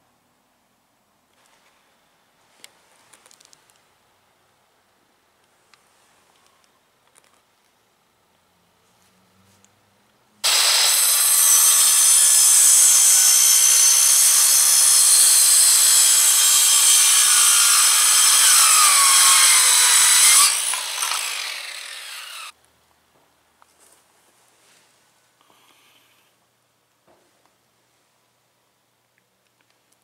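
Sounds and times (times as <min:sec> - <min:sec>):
circular saw cutting wood: 0:10.4 - 0:22.5.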